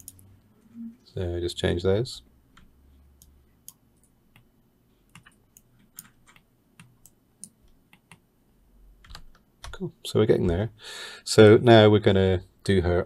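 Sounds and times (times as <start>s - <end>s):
computer mouse and keyboard clicks: 5.1s - 8.2s.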